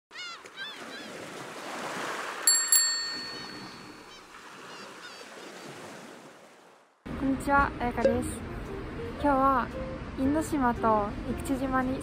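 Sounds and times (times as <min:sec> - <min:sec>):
ocean waves: 0:00.1 - 0:12.0
bicycle bell ringing: 0:02.5 - 0:04.1
bird calls: 0:03.3 - 0:06.0.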